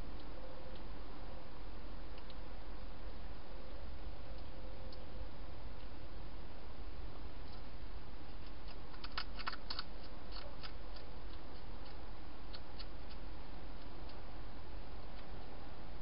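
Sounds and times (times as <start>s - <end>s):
steady low hum: 0.0s - 16.0s
hedgehog crunching dry food: 8.3s - 13.2s.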